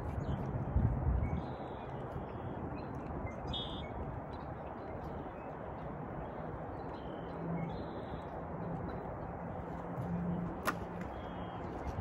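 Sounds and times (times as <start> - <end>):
outdoor background noise: 0.0 - 12.0
high bird chirps: 3.2 - 4.0.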